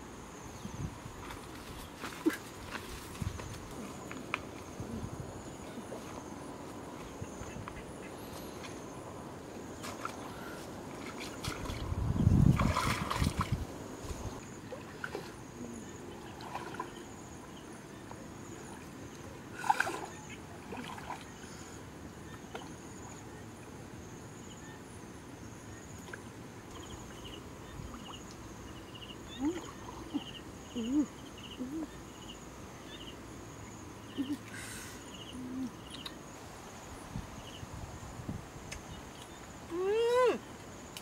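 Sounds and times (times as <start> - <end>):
person wading through water: 9.8 - 17.2, 18.6 - 21.8.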